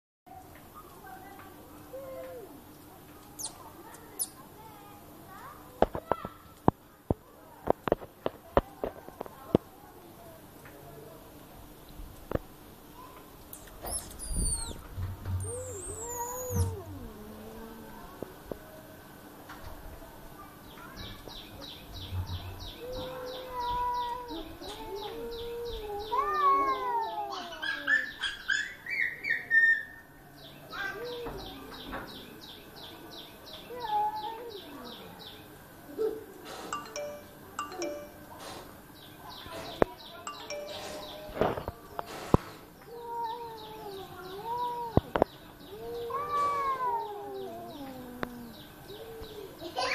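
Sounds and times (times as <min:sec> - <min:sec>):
rapid high chirping: 0:13.6 - 0:16.8, 0:40.3 - 0:41.2
cats meowing: 0:13.7 - 0:14.8, 0:15.4 - 0:18.1, 0:22.8 - 0:28.0, 0:43.0 - 0:49.5.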